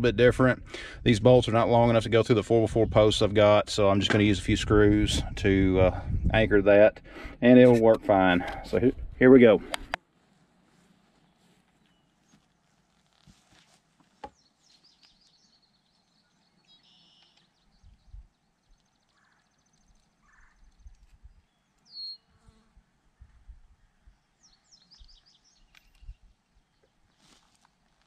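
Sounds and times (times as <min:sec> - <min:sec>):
small birds chirping: 0:14.2 - 0:27.6
insect buzzing: 0:22.2 - 0:22.9.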